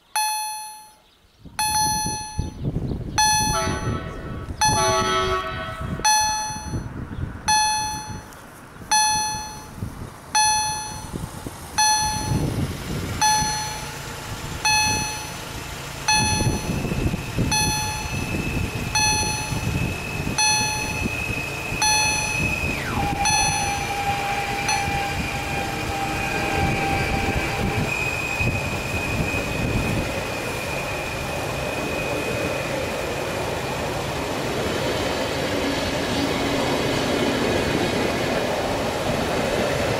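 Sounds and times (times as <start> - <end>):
level crossing warning bell: 0.0 - 1.0, 1.6 - 31.6
electric train rumble and whine: 1.6 - 39.9.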